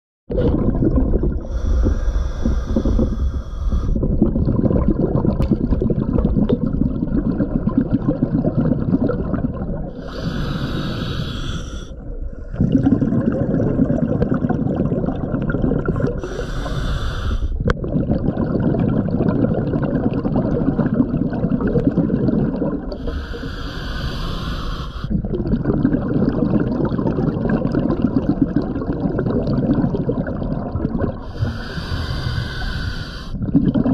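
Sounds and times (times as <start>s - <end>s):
exhaled bubbles gurgling: 0.3s - 33.9s
diver inhaling through regulator: 1.3s - 4.2s, 9.9s - 12.7s, 15.8s - 17.6s, 22.6s - 25.2s, 31.1s - 33.4s.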